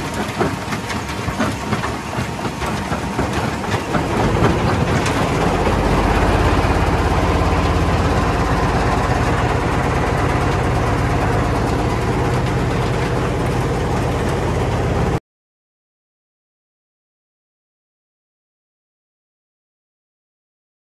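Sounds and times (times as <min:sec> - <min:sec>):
stone crusher mechanical din: 0:00.0 - 0:06.9.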